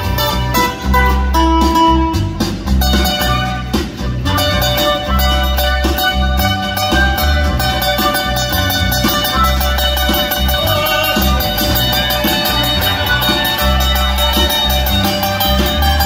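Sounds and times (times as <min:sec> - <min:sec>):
acoustic guitars strumming and picking: 0:00.0 - 0:16.0
harmonica melody: 0:00.0 - 0:16.0.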